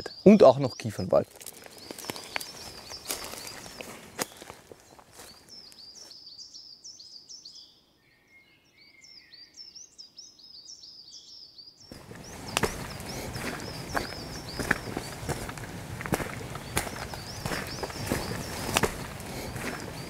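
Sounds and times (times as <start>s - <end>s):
small birds chirping: 0.0s - 20.0s
footsteps crunching on path: 1.2s - 6.2s, 11.9s - 20.0s
whistled bird notes: 5.7s - 20.0s.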